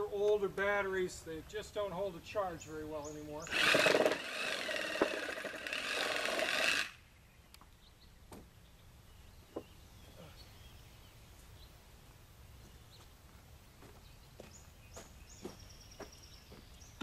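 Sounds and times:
cordless saw cutting wood: 3.5 - 7.0
faint bird chirps: 7.1 - 11.8.

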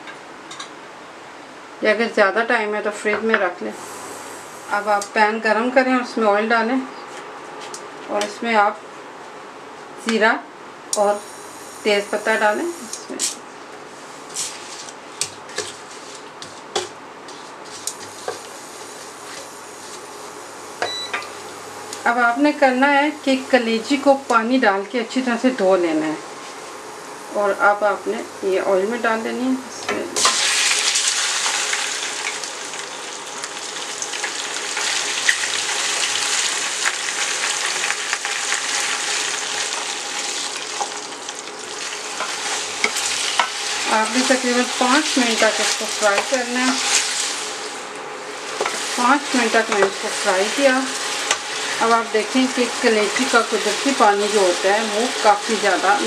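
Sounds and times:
liver sizzling in hot oil: 11.0 - 13.1, 30.2 - 56.0
wooden spoon stirring and tapping pot: 49.6 - 50.0.

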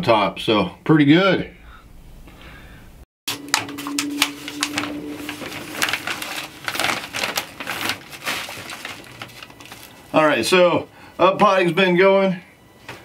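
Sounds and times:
low steady hum: 1.5 - 11.3
potting mix rustling: 5.4 - 10.4.

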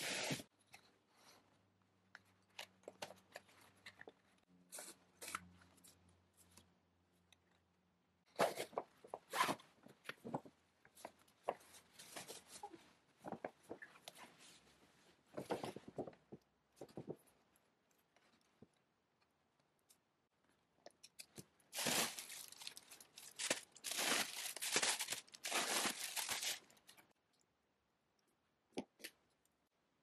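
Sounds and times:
gift packaging rustling: 21.7 - 26.9.

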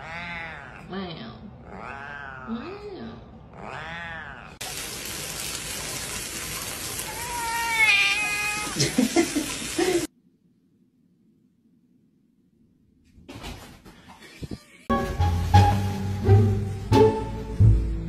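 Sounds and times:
cat meowing: 0.0 - 0.9, 1.6 - 2.8, 3.5 - 4.6, 7.0 - 8.8
water spraying from shower: 4.6 - 10.1, 14.9 - 16.9.

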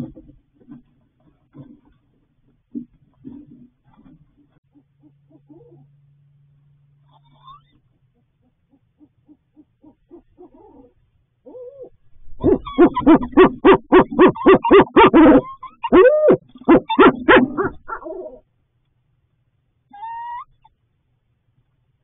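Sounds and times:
owls hooting: 8.7 - 18.4, 19.9 - 20.7.

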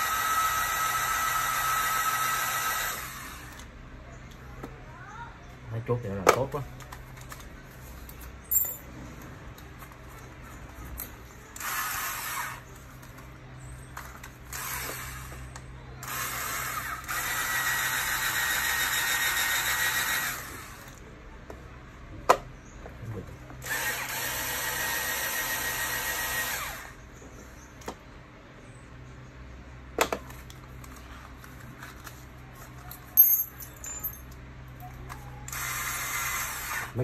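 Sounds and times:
cordless drill drilling: 0.0 - 3.6, 11.6 - 12.6, 14.5 - 15.3, 16.0 - 21.0, 23.6 - 27.0, 35.5 - 37.0.

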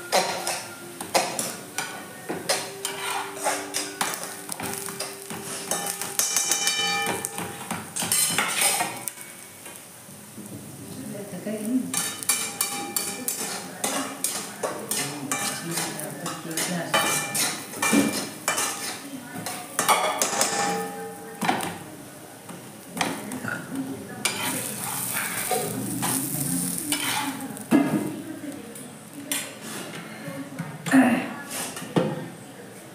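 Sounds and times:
food sizzling in a pan: 0.0 - 30.0
metal ladle scraping a pan: 2.5 - 4.3, 5.0 - 7.4, 8.0 - 9.2, 11.9 - 20.7, 24.2 - 27.7.

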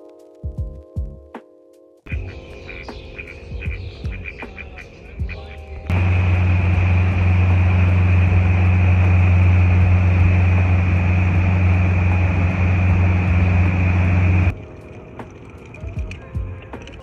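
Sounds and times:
wind: 2.1 - 17.0
water rushing: 5.9 - 15.9
outboard motor droning: 5.9 - 16.6.

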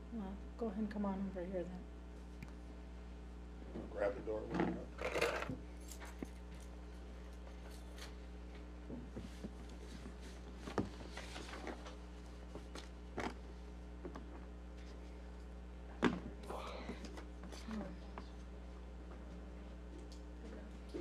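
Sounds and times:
low electrical hum: 0.0 - 21.0.

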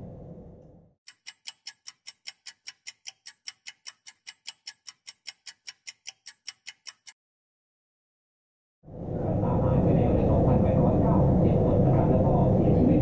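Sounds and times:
fast clock ticks: 1.1 - 7.2.

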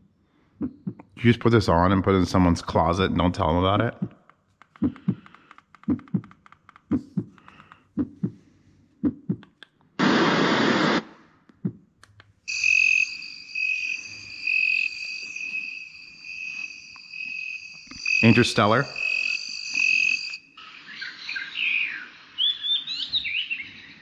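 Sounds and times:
heartbeat low thumps: 6.9 - 7.4, 8.0 - 8.4, 9.0 - 9.5
burst of hiss: 10.0 - 11.0
high pulsing chirring: 12.5 - 22.4.

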